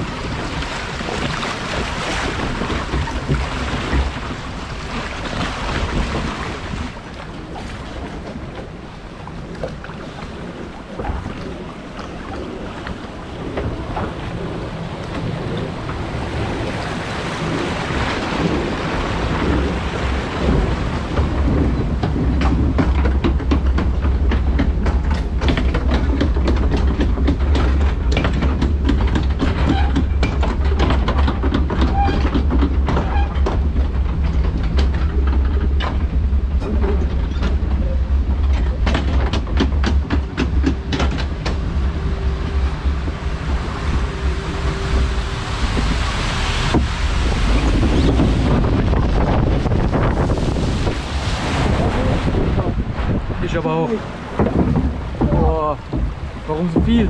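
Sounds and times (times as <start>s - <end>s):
low mechanical rumble: 0.0s - 57.0s
water rushing in trough: 0.0s - 57.0s
conveyor chain clacking and rattling: 20.5s - 45.1s.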